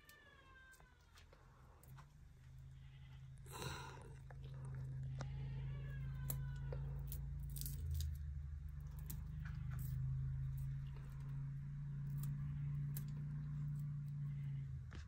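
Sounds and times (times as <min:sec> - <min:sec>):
low hum: 0:00.7 - 0:15.0.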